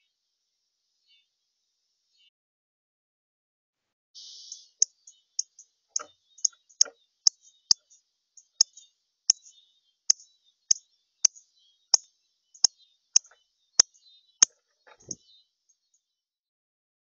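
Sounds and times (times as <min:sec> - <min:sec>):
bird chip calls: 0:04.2 - 0:15.4.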